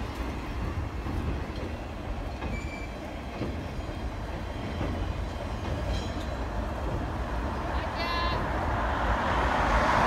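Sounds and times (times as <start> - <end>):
train wheels rumbling on rails: 0.0 - 10.0
short high squeak: 2.5 - 3.0.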